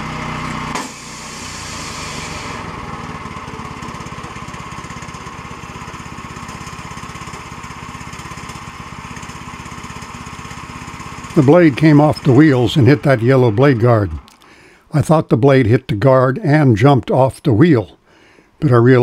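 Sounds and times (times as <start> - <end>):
band sawmill running: 0.0 - 15.2
saw blade hitting blade guard: 0.7 - 1.2
gas engine pulsing: 0.7 - 14.8.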